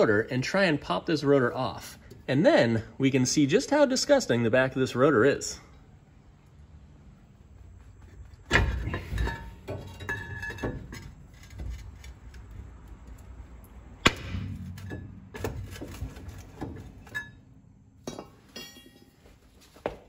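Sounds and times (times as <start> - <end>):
metal clattering and ringing: 8.5 - 11.7, 14.4 - 19.4
steel tools clanking on metal: 8.6 - 11.7, 16.4 - 17.4, 18.0 - 19.2.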